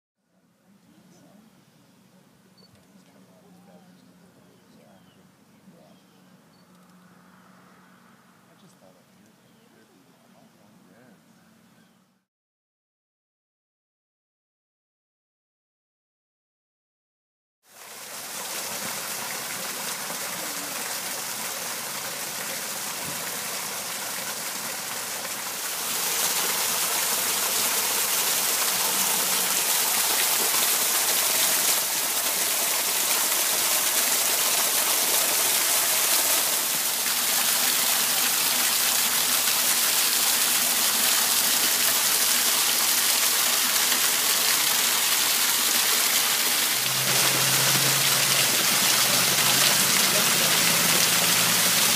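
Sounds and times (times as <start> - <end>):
waterfall splashing over boulders: 17.7 - 51.9.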